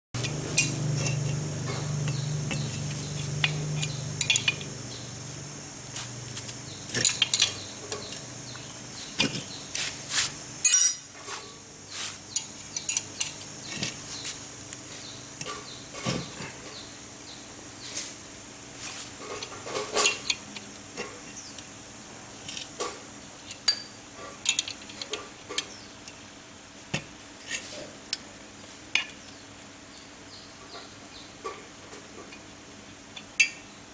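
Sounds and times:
spanner clinking on metal: 0.2 - 4.8, 6.9 - 8.3, 10.6 - 11.1, 12.3 - 14.0, 23.5 - 25.2
low hum: 0.2 - 9.6
steady high hiss: 0.2 - 33.9.

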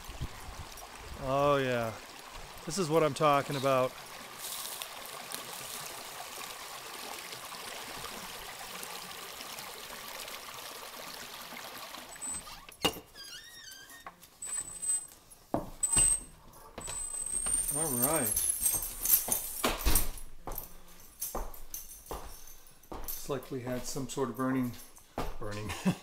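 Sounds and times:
brook trickling over stones: 0.0 - 12.8.

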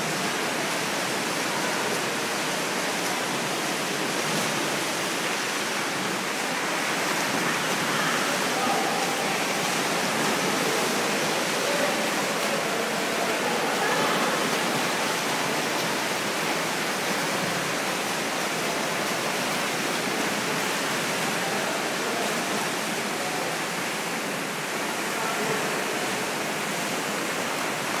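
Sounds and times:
splashing in indoor pool: 0.0 - 28.0
echoing voices: 6.5 - 16.2.

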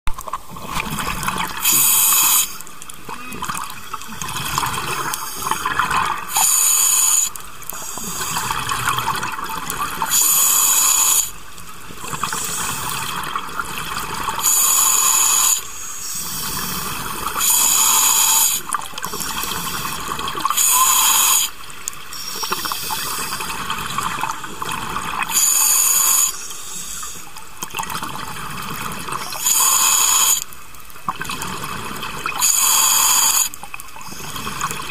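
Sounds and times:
scuba regulator inhale hiss: 1.6 - 2.6, 6.3 - 8.6, 10.1 - 11.4, 12.1 - 13.0, 14.4 - 23.6, 25.3 - 27.3, 29.3 - 30.5, 32.4 - 34.4.

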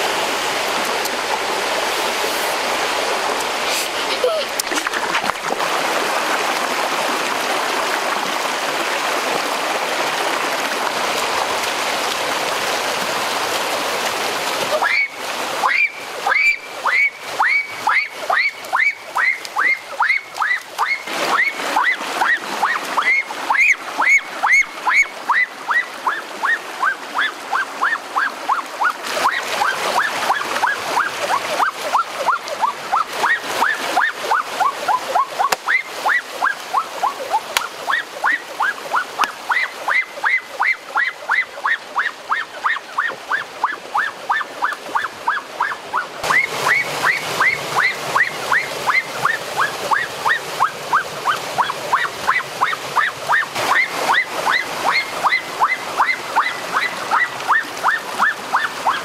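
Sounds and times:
water rushing over rocks: 0.0 - 59.0
animal chirping call: 14.8 - 59.0.

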